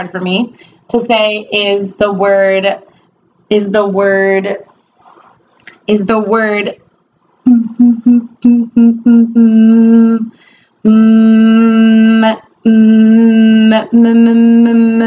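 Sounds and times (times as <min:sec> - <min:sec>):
woman stuttering on m sound: 0:07.5 - 0:15.0.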